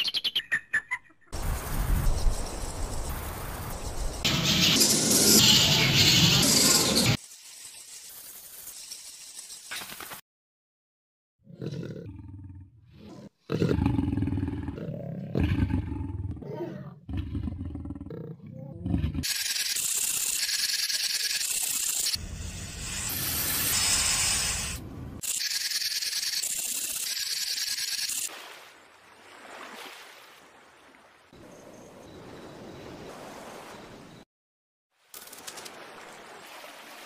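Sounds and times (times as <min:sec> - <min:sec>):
lion roaring: 0:11.5 - 0:19.3
snake hissing: 0:19.3 - 0:24.8.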